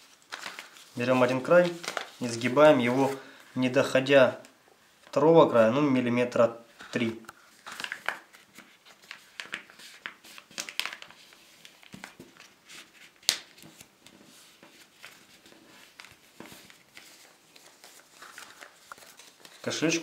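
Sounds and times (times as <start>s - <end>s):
paper rustling and crinkling: 0.0s - 3.5s, 6.8s - 20.0s.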